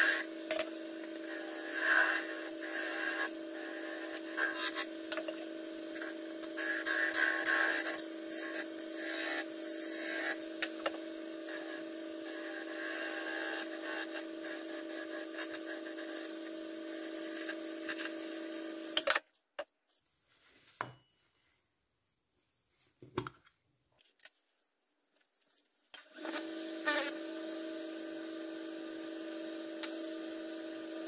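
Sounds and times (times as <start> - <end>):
chisel shaving spinning wood: 0.0 - 18.9
wood lathe motor hum: 0.0 - 19.0, 26.1 - 31.0.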